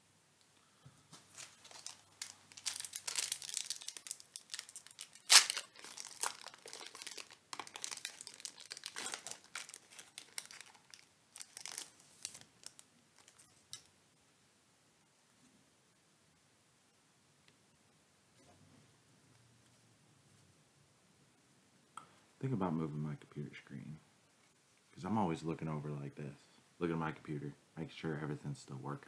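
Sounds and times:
foil wrapper crinkling and tearing: 0:01.3 - 0:13.9.

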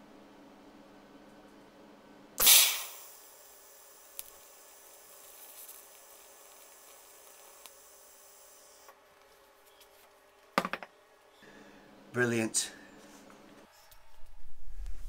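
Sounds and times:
welding arc hissing: 0:02.4 - 0:08.9.

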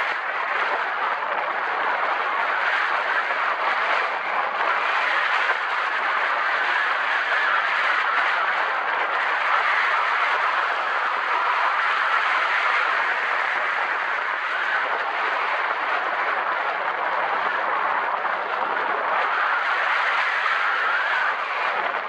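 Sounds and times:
wind rushing over microphone: 0:00.0 - 0:22.0.

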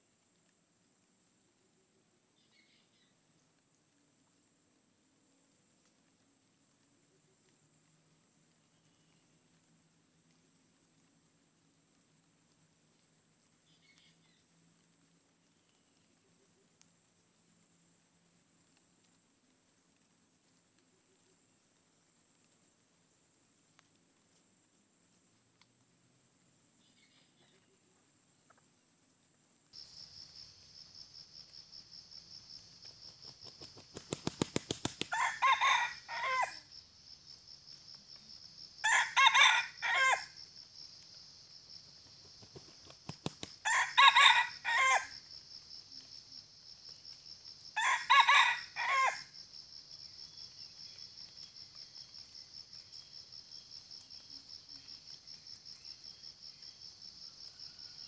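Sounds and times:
crickets droning: 0:00.0 - 0:58.0
wings flapping: 0:32.8 - 0:35.4, 0:42.1 - 0:43.7
rooster crowing: 0:35.1 - 0:36.6, 0:38.8 - 0:40.4, 0:43.6 - 0:45.2, 0:47.8 - 0:49.3.

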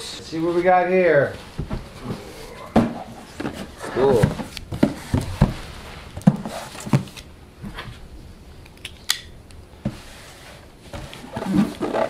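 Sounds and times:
cardboard rustling: 0:01.3 - 0:08.0, 0:09.8 - 0:12.0.

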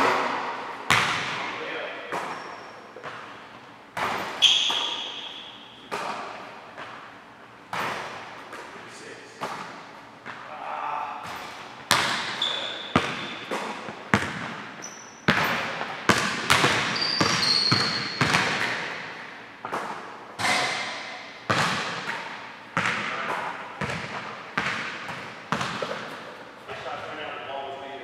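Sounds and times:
basketball bouncing on hardwood: 0:00.9 - 0:01.5, 0:11.3 - 0:14.6, 0:15.3 - 0:19.0, 0:22.8 - 0:26.2
short high squeaks: 0:04.3 - 0:05.8, 0:12.3 - 0:13.4, 0:14.8 - 0:15.3, 0:16.9 - 0:18.2.

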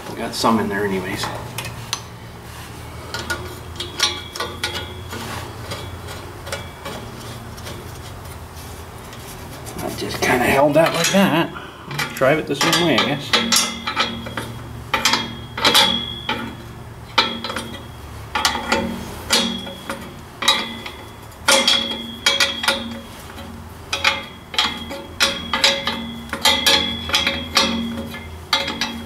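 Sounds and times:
steel pipe ringing: 0:03.1 - 0:07.9, 0:10.2 - 0:29.0
hammer tapping metal pipe: 0:11.9 - 0:16.6, 0:17.2 - 0:29.0.

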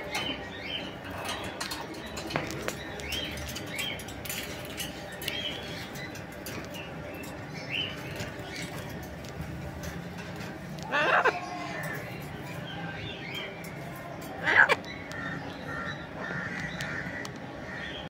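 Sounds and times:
parrots squeaky chirps: 0:00.0 - 0:13.6, 0:14.3 - 0:15.1.

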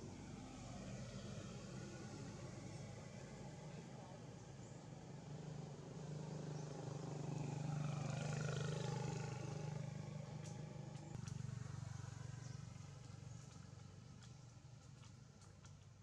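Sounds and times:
low engine hum: 0:00.0 - 0:16.0.

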